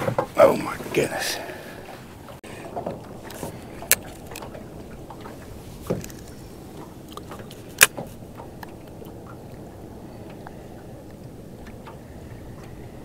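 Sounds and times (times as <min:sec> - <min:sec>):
fishing gear ticking: 0:02.9 - 0:04.6.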